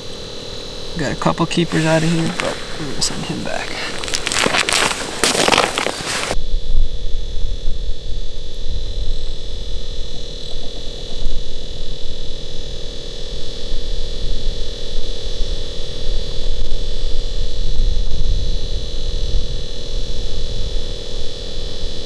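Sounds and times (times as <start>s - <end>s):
two-pitch hum: 0.0s - 14.6s
wind rumble on microphone: 6.3s - 12.7s, 13.3s - 22.0s.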